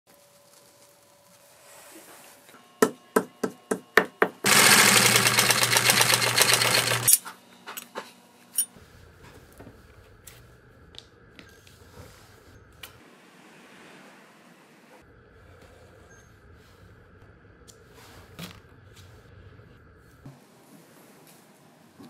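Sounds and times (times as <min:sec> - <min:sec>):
workshop machine running: 0:02.6 - 0:08.7.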